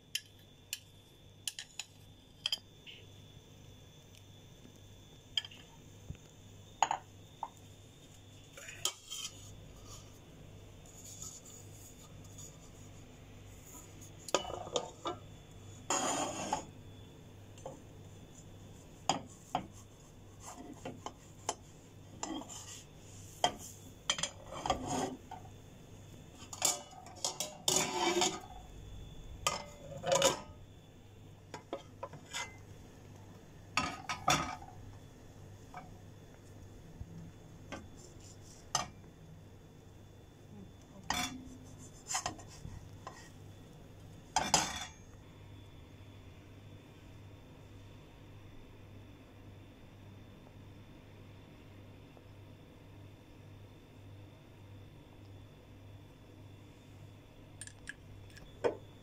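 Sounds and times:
spatula scraping a frying pan: 8.6s - 10.2s, 10.8s - 13.0s, 15.8s - 16.7s, 19.0s - 25.5s, 26.4s - 28.6s, 31.5s - 32.6s, 41.0s - 43.4s, 44.3s - 45.0s.

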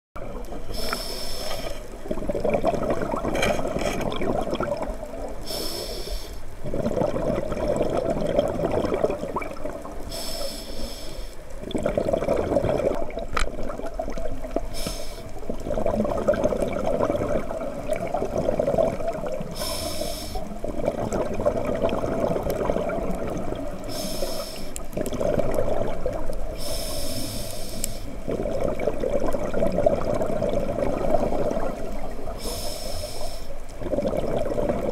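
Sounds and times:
gurgling exhaled bubbles: 0.2s - 5.6s, 6.6s - 10.3s, 11.6s - 27.5s, 28.1s - 32.7s, 33.6s - 34.9s
regulator inhalation hiss: 0.7s - 1.9s, 5.4s - 6.5s, 10.1s - 11.4s, 14.7s - 15.4s, 19.5s - 20.6s, 23.9s - 24.8s, 26.5s - 28.2s, 32.3s - 33.6s.

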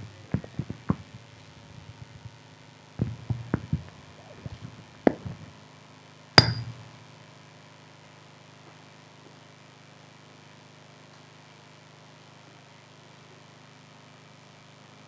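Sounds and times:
sharp clink with ring: 6.4s - 6.8s
faint low hum: 6.4s - 7.2s.

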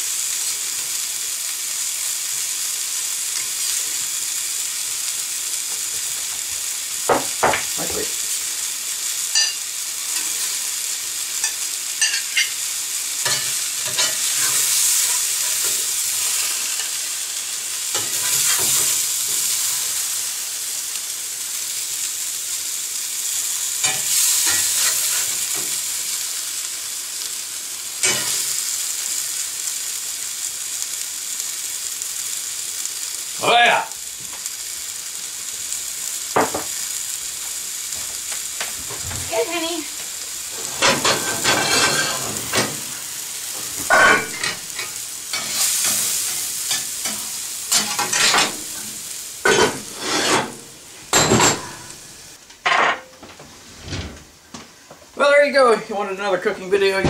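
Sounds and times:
potatoes sizzling in a skillet: 0.0s - 53.2s, 54.4s - 57.0s
metal spatula scraping a pan: 40.6s - 42.7s, 49.4s - 50.6s.

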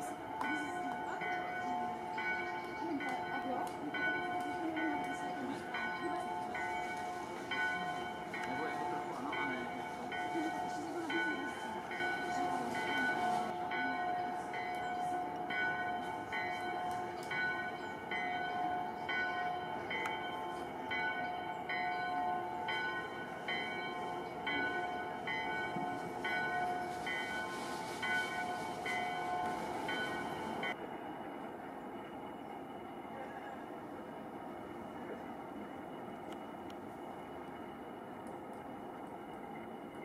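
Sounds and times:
bells ringing: 0.0s - 30.8s.

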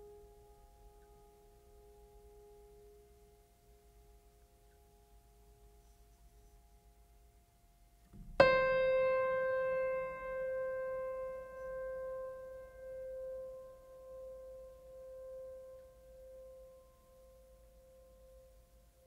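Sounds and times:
loud piano note ringing: 8.2s - 16.6s
piano music: 8.3s - 16.8s.

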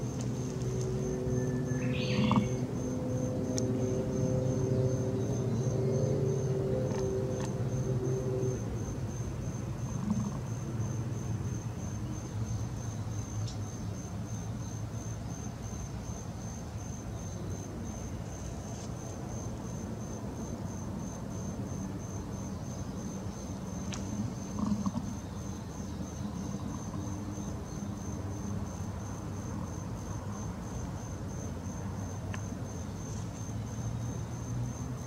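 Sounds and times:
low steady rumble: 0.0s - 13.6s
insect chirping: 0.0s - 35.0s.

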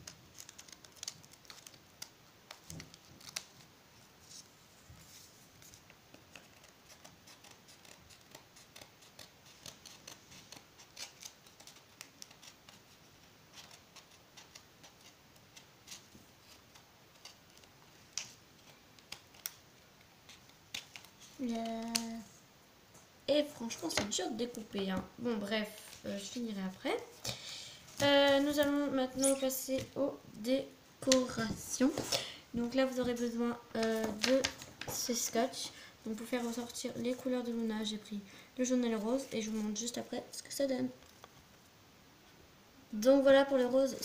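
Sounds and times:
scissors snipping paper: 0.0s - 3.6s, 6.3s - 12.8s, 13.5s - 19.6s.

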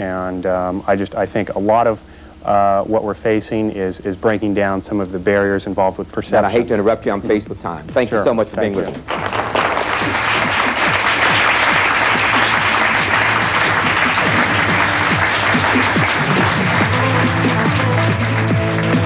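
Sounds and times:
audience applauding: 8.2s - 19.0s
closing theme music: 9.0s - 19.0s.

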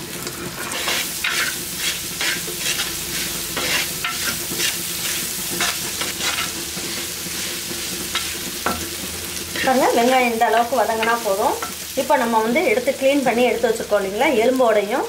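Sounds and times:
onions sizzling in oil: 0.0s - 15.0s
metal spatula scraping pan: 0.6s - 11.9s.

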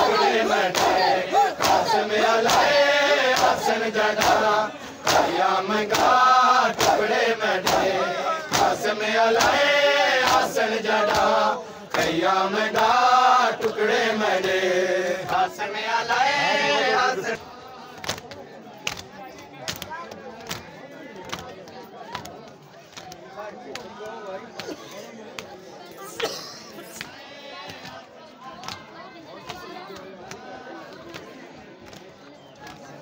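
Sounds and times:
men chanting in unison: 0.0s - 18.1s
hands slapping chests: 0.1s - 7.9s, 8.5s - 8.8s, 9.4s - 9.6s, 10.2s - 10.5s, 11.1s - 13.0s, 18.0s - 23.9s.

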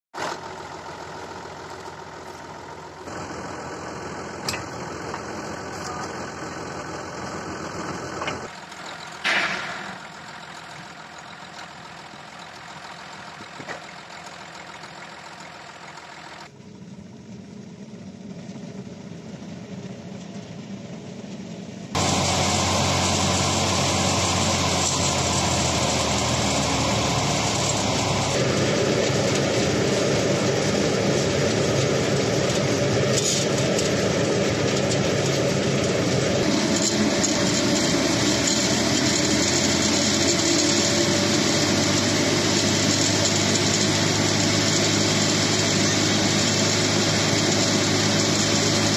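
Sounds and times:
tractor driving thresher drone: 0.2s - 48.9s.

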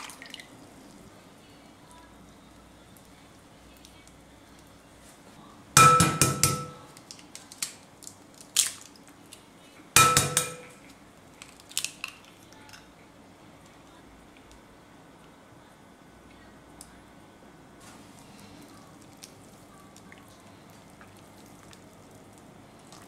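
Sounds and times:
eggs knocking on glass bowl: 5.8s - 6.8s, 10.0s - 10.8s.

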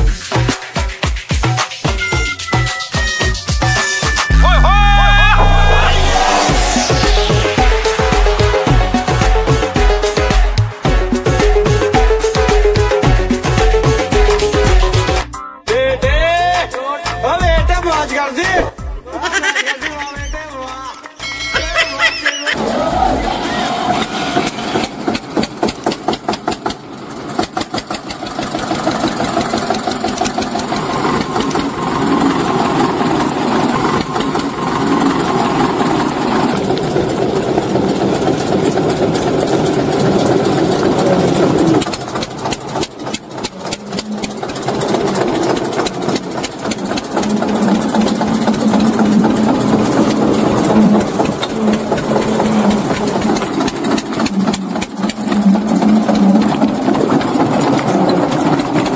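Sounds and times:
mini tractor engine running: 19.3s - 58.9s.

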